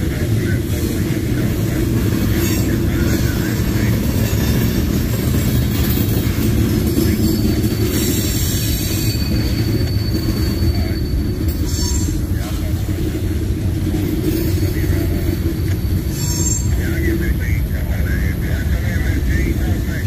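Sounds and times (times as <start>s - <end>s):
train wheels rumbling on rail: 0.0s - 20.0s
high wheel squeal: 1.5s - 17.3s.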